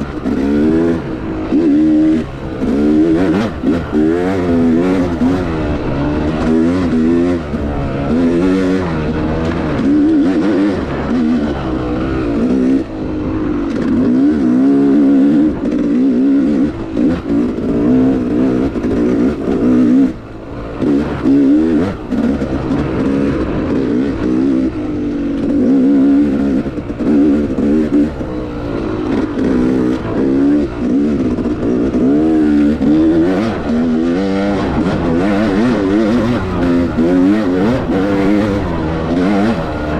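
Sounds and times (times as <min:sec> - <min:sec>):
dirt bike engine revving: 0:00.0 - 0:39.9.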